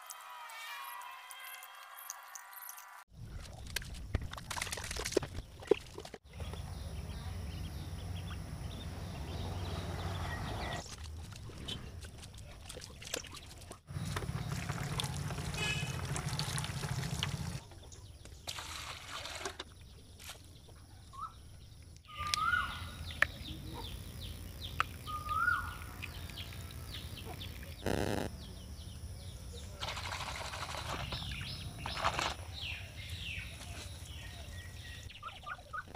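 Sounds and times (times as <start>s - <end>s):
bird calls: 22.0s - 35.9s.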